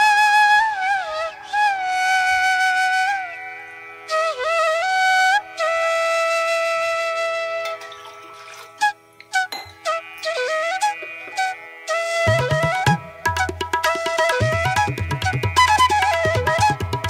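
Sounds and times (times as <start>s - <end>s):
slow sliding melody: 7.5s - 13.1s.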